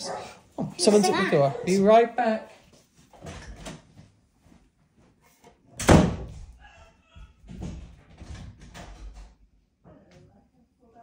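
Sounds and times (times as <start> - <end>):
door shutting thud: 5.8 - 6.5.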